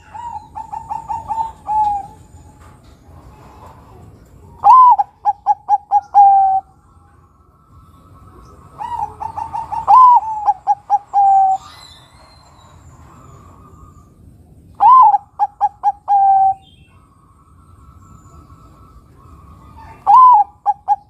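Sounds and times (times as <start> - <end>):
dove cooing: 0.0 - 4.0, 4.6 - 6.7, 8.0 - 11.9, 14.8 - 16.8, 18.3 - 21.0.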